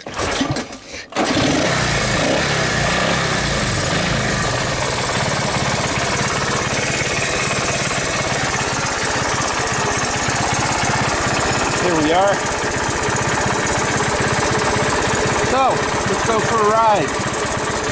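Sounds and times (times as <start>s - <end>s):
small engine starting and running: 0.0s - 17.9s.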